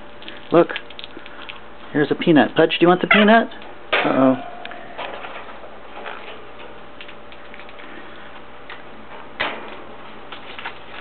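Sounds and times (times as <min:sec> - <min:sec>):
parakeets cracking food: 0:00.2 - 0:01.7.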